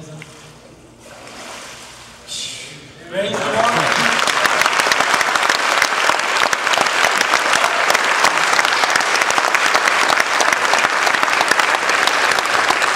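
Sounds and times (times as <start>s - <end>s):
congregation clapping: 3.3s - 12.9s.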